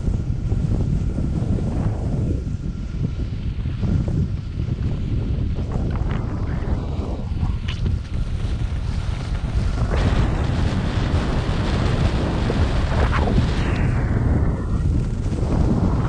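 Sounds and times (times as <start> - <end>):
wind buffeting microphone: 0.0 - 16.0
skis scraping over snow: 3.2 - 16.0.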